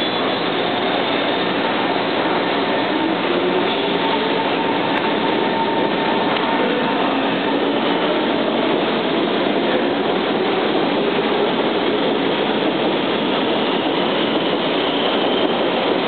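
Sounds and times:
metro train running past: 0.0s - 16.0s.

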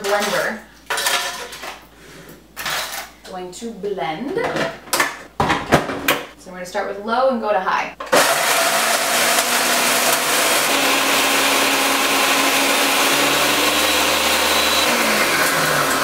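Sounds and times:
blender grinding: 8.1s - 16.0s.

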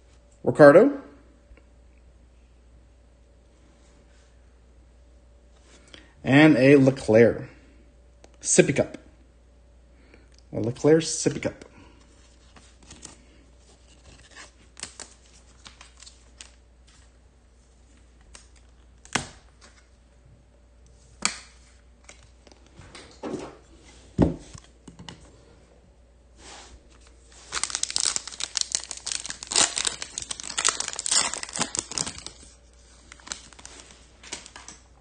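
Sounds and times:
foil wrapper crinkling and tearing: 13.8s - 16.6s, 27.3s - 34.6s.

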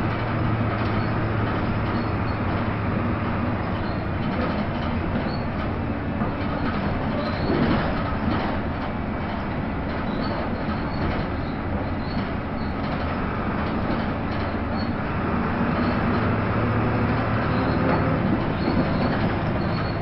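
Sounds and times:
bus engine drone: 0.0s - 20.0s
tyre and road noise: 0.0s - 20.0s
faint high squeaks: 5.2s - 5.5s, 7.0s - 7.7s, 17.4s - 20.0s.

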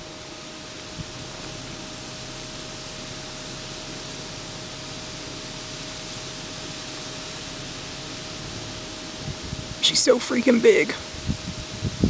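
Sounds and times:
background hiss: 5.2s - 11.2s
faint high whine: 8.4s - 11.2s.

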